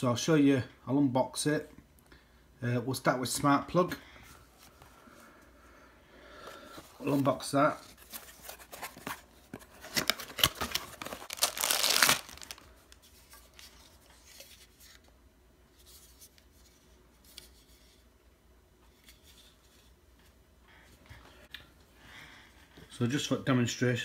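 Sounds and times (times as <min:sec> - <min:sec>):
faint handling: 0:06.4 - 0:15.1
plastic wrapping crinkling and tearing: 0:08.2 - 0:13.8.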